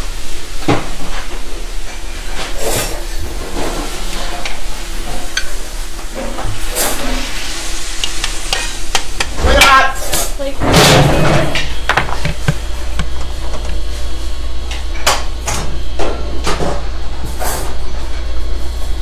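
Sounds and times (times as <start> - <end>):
steady hiss: 0.0 - 14.7.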